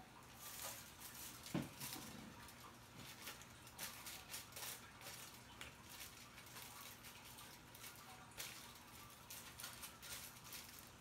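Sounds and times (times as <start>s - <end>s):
comb rustling through hair: 0.0s - 11.0s.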